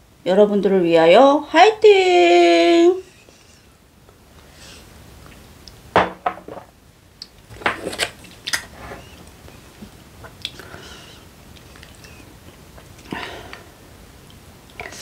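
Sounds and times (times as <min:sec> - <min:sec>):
tableware clattering: 0:06.0 - 0:06.7
tableware knocking and scraping: 0:06.0 - 0:06.7.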